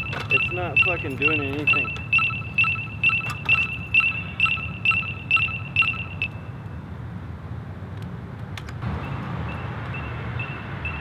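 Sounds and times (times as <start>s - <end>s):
electric scooter beeping: 0.0s - 6.6s, 9.0s - 11.0s.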